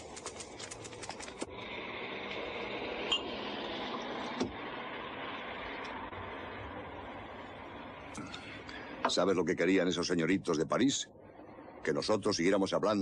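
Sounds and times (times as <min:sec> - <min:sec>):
typewriter keys clattering: 0:00.0 - 0:01.5.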